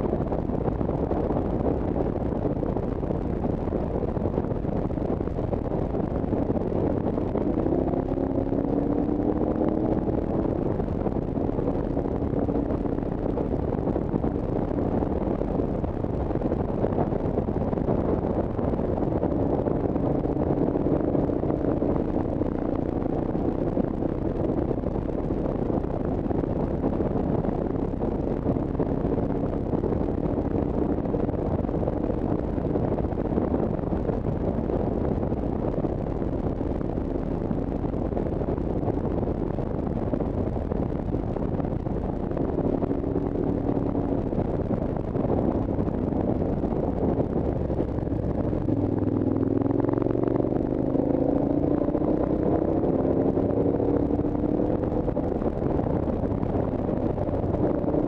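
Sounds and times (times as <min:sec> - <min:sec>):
vehicle engine running: 0:00.0 - 0:58.0
wind rush: 0:00.0 - 0:58.0.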